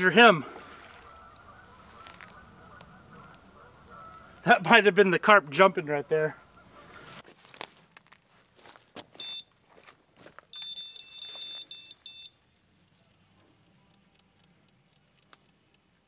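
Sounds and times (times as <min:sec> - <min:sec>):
bite alarm beeping: 0:09.2 - 0:09.5, 0:10.5 - 0:12.4.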